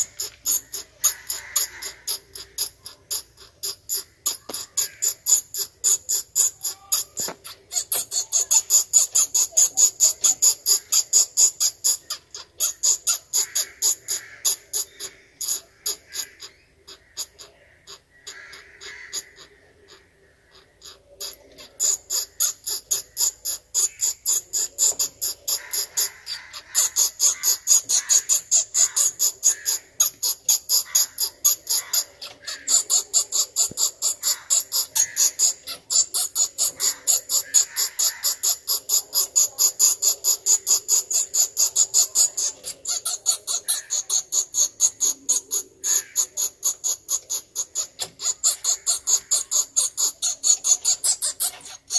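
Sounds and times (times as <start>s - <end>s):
bat squeaking: 0.0s - 51.9s.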